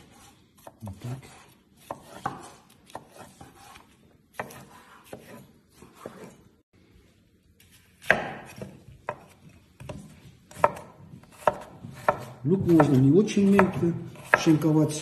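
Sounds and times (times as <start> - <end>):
knife striking cutting board: 1.8 - 5.4, 8.0 - 14.6.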